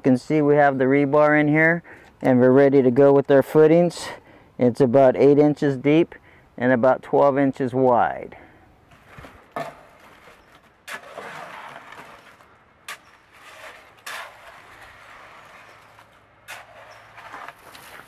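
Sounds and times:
concrete dumped into wheelbarrow: 0:08.9 - 0:18.0
shovel scraping wet concrete: 0:08.9 - 0:18.0.

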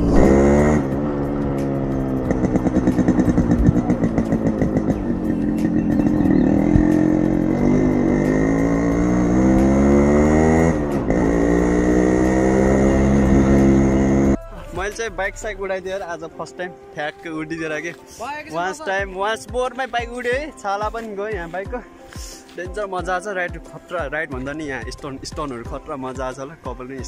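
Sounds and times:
two-stroke engine revving: 0:00.0 - 0:14.4.

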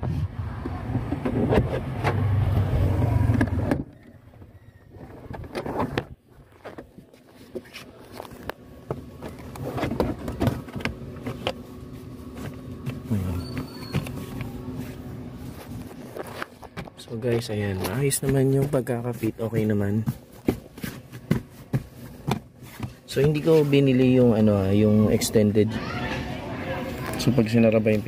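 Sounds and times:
rubber floor mat knocks and scrapes: 0:15.6 - 0:23.6.

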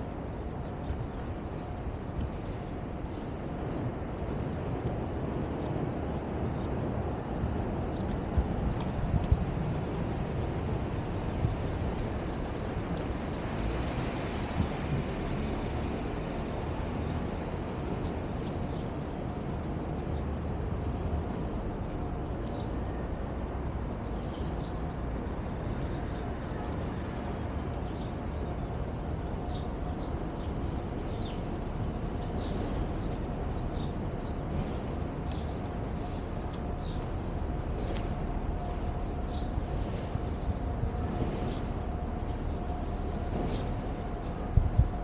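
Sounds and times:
low rumble of city noise: 0:00.0 - 0:45.0
small birds chirping: 0:15.0 - 0:21.7, 0:25.7 - 0:45.0.

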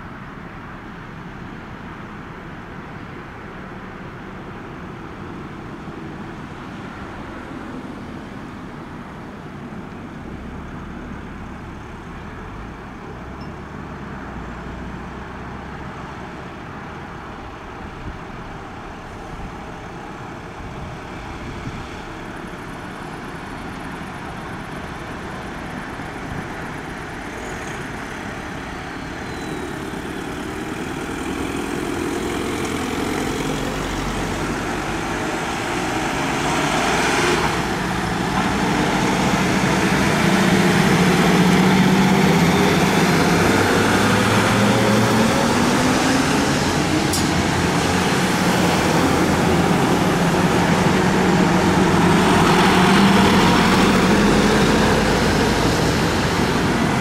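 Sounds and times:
vehicle engines driving past: 0:10.3 - 0:57.0.

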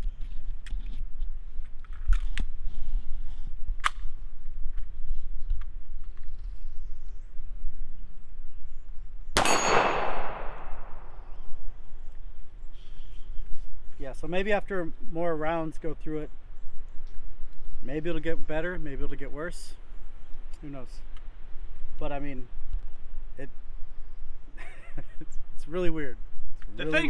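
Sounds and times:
pistol shot with echo: 0:09.4 - 0:11.2.

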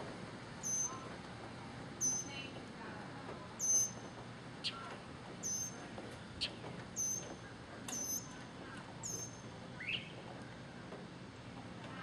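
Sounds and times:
mockingbird singing: 0:00.6 - 0:01.0, 0:02.0 - 0:02.5.

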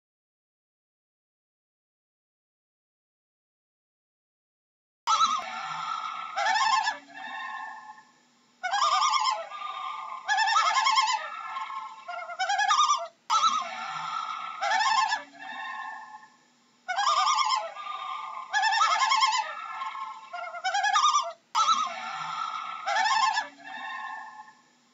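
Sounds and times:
loon calling: 0:05.1 - 0:24.6.

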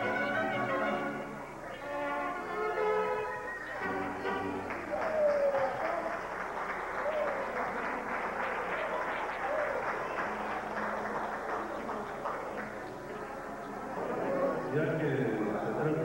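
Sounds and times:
voices calling out: 0:00.6 - 0:16.0
audience applauding: 0:03.5 - 0:14.6.

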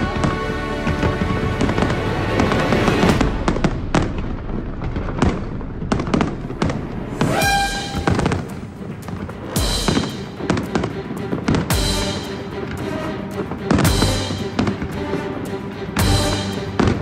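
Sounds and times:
music playing: 0:00.0 - 0:04.2, 0:06.6 - 0:17.0
fireworks bangs and crackles: 0:00.0 - 0:17.0
pitched tone: 0:07.2 - 0:08.4.

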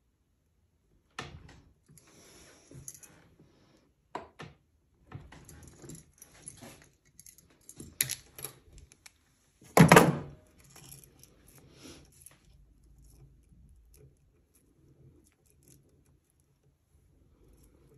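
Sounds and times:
metal chain links clinking: 0:05.5 - 0:09.0, 0:10.4 - 0:14.1.

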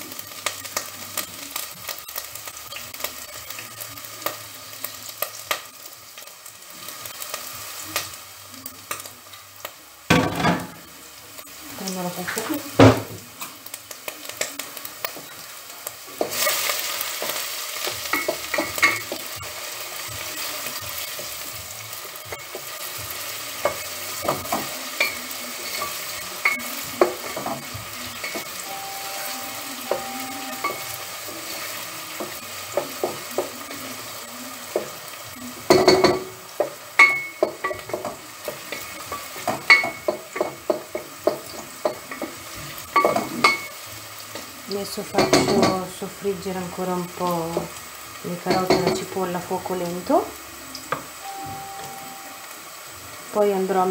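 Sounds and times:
vegetables sizzling in oil: 0:00.0 - 0:53.9.

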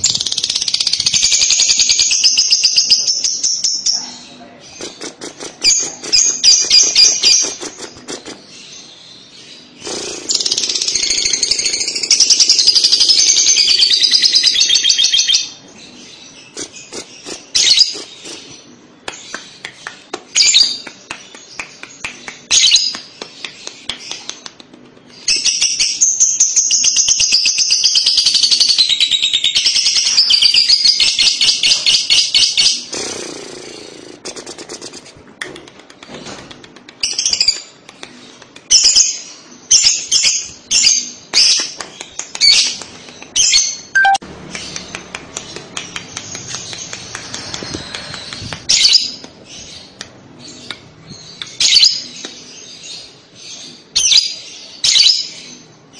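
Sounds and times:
bird chirps: 0:42.4 - 0:55.7.

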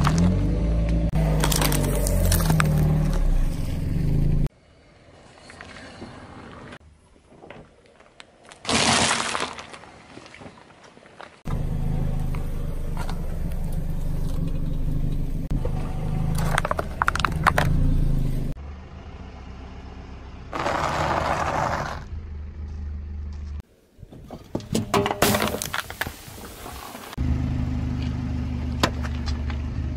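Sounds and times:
toy car crushed: 0:01.4 - 0:02.8, 0:08.6 - 0:09.8
pretzels crunching: 0:01.4 - 0:02.9
car engine running: 0:11.5 - 0:19.2.

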